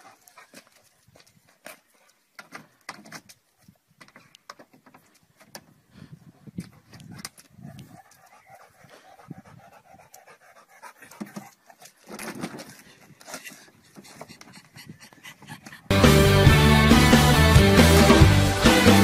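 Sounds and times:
dog panting: 0:00.0 - 0:02.2, 0:06.3 - 0:12.1, 0:12.7 - 0:15.9.

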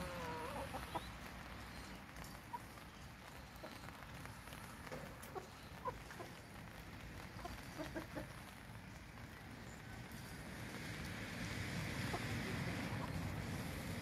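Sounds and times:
chickens clucking softly: 0:00.0 - 0:01.3, 0:07.4 - 0:08.5.

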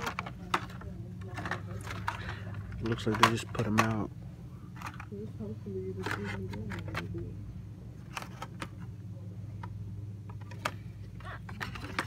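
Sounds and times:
plastic packages clicking and rustling: 0:00.0 - 0:04.1
steady low hum: 0:00.0 - 0:12.0.

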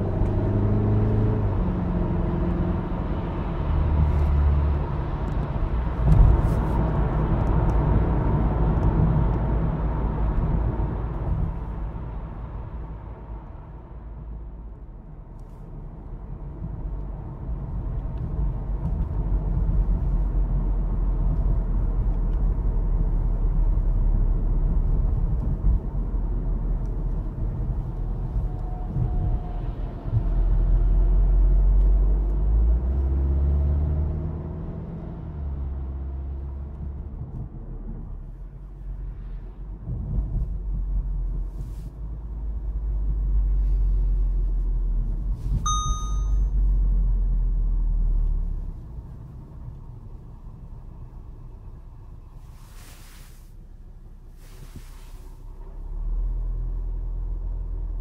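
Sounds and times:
car cabin engine and road noise: 0:00.0 - 0:58.0
dashboard warning chime: 0:45.6 - 0:46.6.

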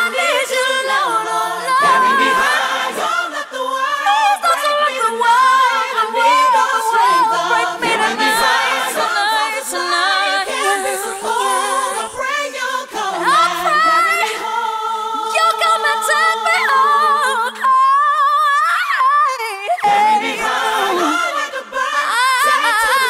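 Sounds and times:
choir holding harmonies: 0:00.0 - 0:18.0, 0:19.3 - 0:23.0
lead voice singing wordless runs: 0:01.8 - 0:02.6, 0:07.8 - 0:08.6, 0:19.9 - 0:21.2.

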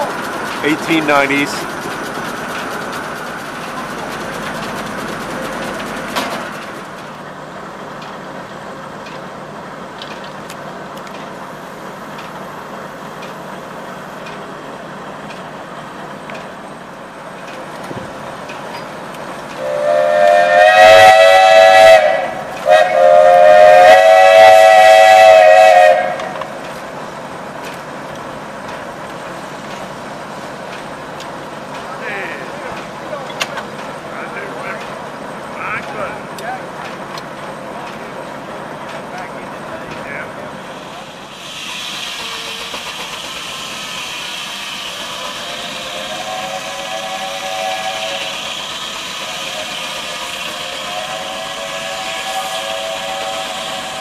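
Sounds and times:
sawmill engine and machinery running: 0:00.0 - 0:54.0
steam whistle blasts: 0:19.6 - 0:26.5, 0:43.8 - 0:54.0.

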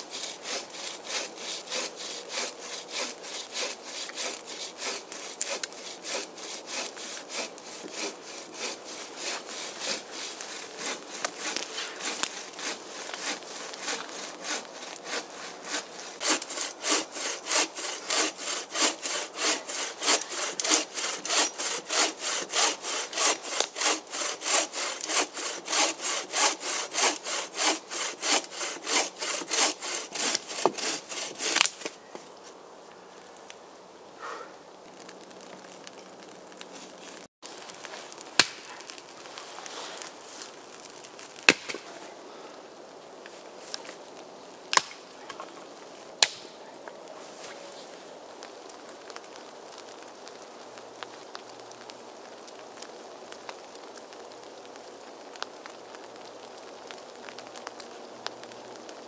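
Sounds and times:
bow saw cutting log: 0:00.0 - 0:31.9.

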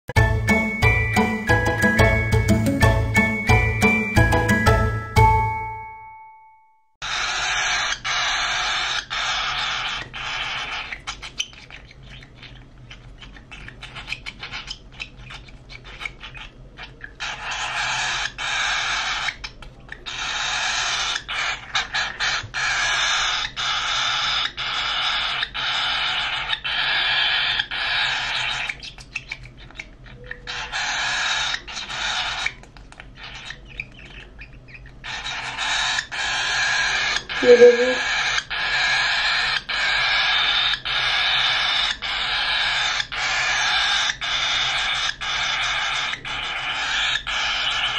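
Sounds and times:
cockatiel raspy begging calls: 0:07.0 - 0:10.9.

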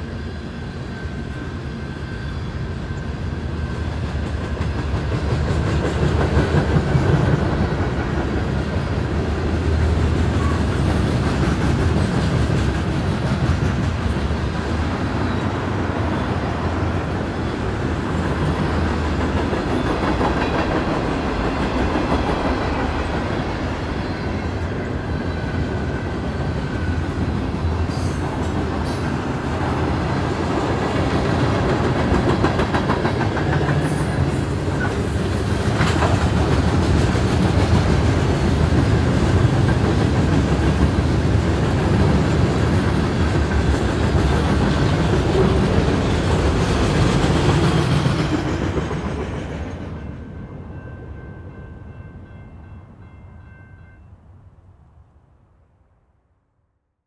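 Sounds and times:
freight train wheels rumbling: 0:00.0 - 0:53.6.

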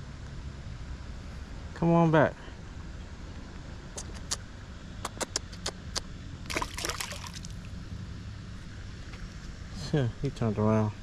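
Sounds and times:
steady low rumble: 0:00.0 - 0:11.0
small splashes in water: 0:06.5 - 0:07.8.

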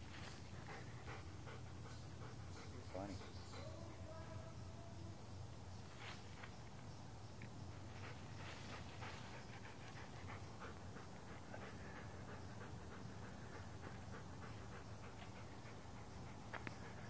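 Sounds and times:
dog panting: 0:00.0 - 0:04.4, 0:07.7 - 0:17.0.

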